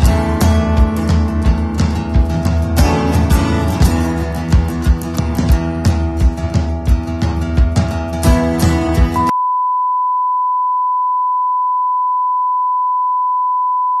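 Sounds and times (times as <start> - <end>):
background music with strong beat: 0.0 - 9.3
steady test tone beep: 9.2 - 14.0.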